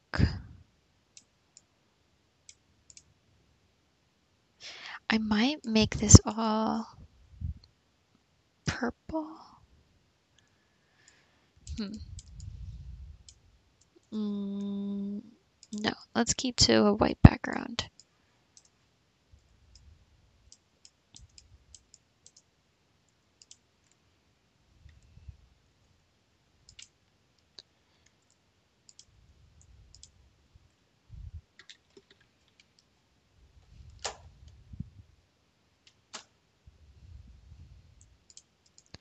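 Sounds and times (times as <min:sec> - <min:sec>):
computer mouse clicks: 0:02.4 - 0:03.1, 0:10.4 - 0:12.6, 0:17.9 - 0:18.8, 0:20.5 - 0:22.5, 0:23.1 - 0:24.0, 0:26.6 - 0:30.2, 0:31.6 - 0:32.9, 0:35.8 - 0:36.4, 0:38.0 - 0:39.0
soft low bumps: 0:31.1 - 0:31.4.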